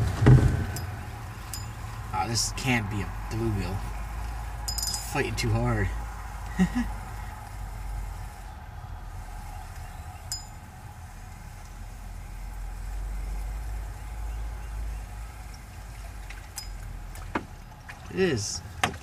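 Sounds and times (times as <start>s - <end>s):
fishing reel cranking: 0.7s - 8.6s.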